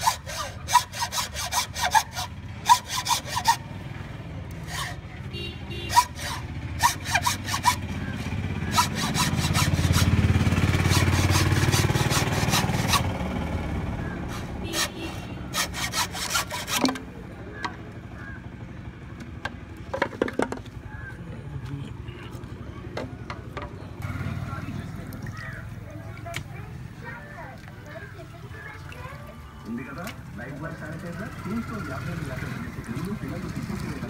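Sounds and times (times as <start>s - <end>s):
hacksaw cutting bamboo: 0.0s - 3.7s, 4.5s - 5.0s, 5.8s - 13.2s, 14.2s - 17.1s.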